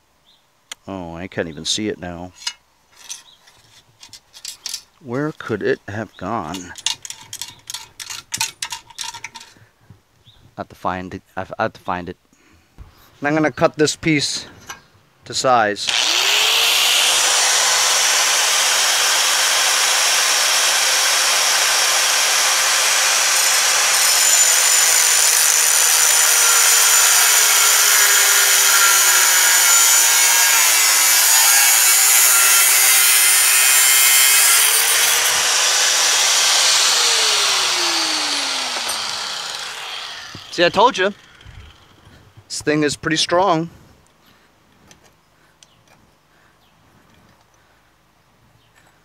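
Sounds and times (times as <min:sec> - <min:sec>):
angle grinder cutting sheet metal: 0:15.8 - 0:41.9.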